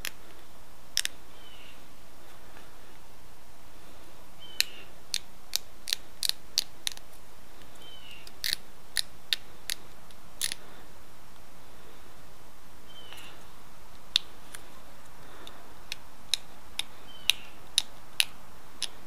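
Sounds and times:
antler flaking stone clicks: 0.0s - 1.2s, 4.5s - 10.6s, 13.9s - 19.0s.

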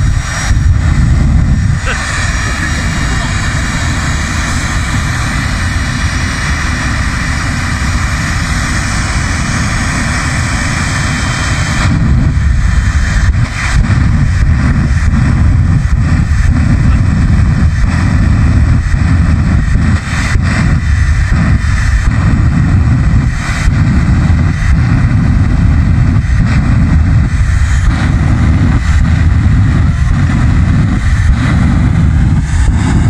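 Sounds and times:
jet engine roaring: 0.0s - 33.0s.

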